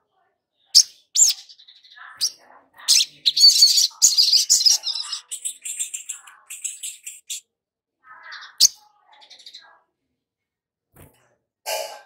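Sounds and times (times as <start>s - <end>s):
bird chirping and twittering: 0.6s - 7.4s, 8.0s - 9.8s.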